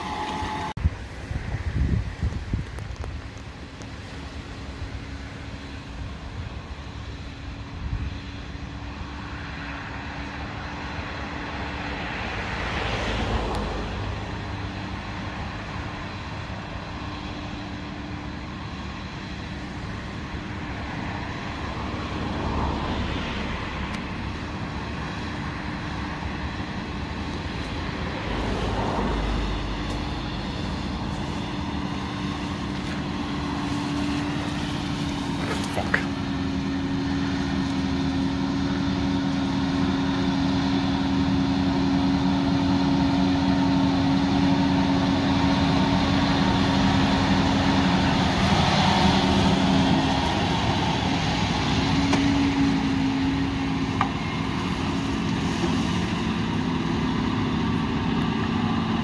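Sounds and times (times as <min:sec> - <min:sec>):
tractor engines droning: 0:00.0 - 0:59.0
wind gusts on microphone: 0:00.1 - 0:17.3.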